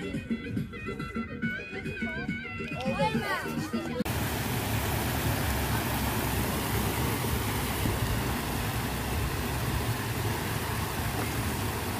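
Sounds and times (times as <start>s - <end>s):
water rushing down stone cascades: 4.1s - 11.9s.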